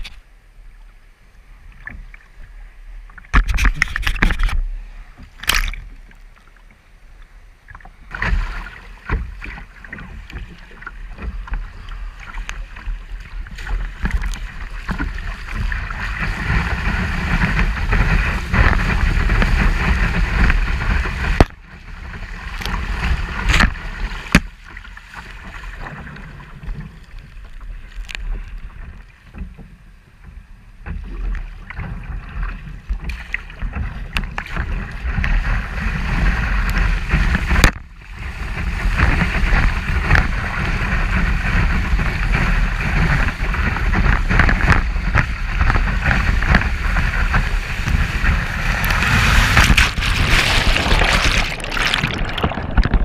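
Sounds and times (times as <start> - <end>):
surf rushing and splashing: 8.0 - 29.5, 30.8 - 53.0
wind buffeting microphone: 32.1 - 53.0
water slaps: 44.1 - 53.0.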